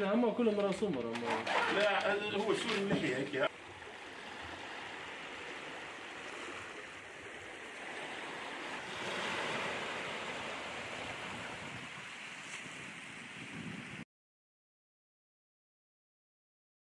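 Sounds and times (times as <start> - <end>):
sea water surging: 1.3 - 14.0
wind noise on microphone: 8.9 - 14.0.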